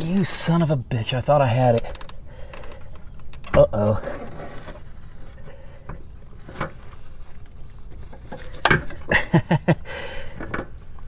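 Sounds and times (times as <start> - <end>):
knocks and clunks of metal parts: 10.3 - 10.8.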